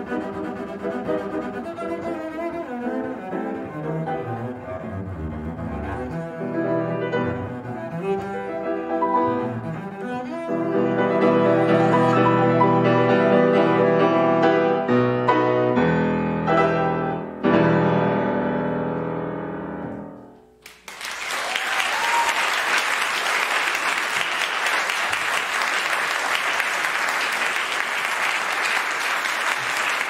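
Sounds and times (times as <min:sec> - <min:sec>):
double bass and piano chords: 0:00.0 - 0:20.6
audience applause: 0:20.6 - 0:30.0.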